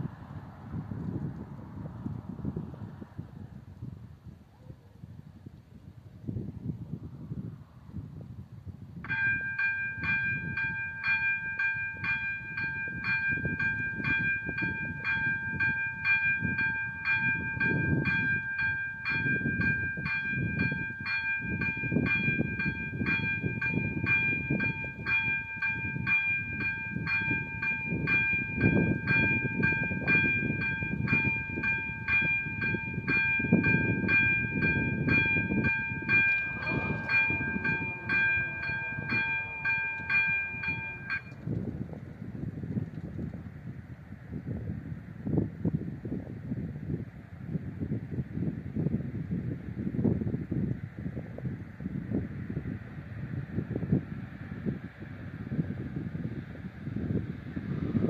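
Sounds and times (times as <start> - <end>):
crossing warning bell dinging: 9.0 - 41.4.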